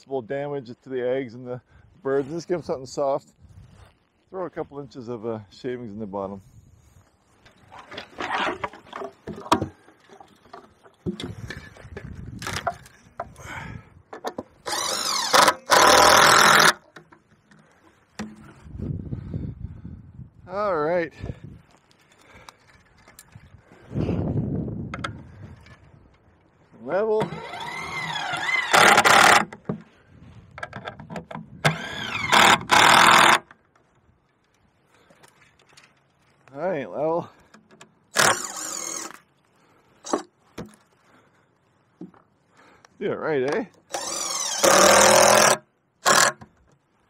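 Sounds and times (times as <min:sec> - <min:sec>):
power drill driving screws: 0:14.6 - 0:16.8, 0:27.2 - 0:29.5, 0:31.6 - 0:33.5, 0:38.1 - 0:39.2, 0:43.9 - 0:46.4.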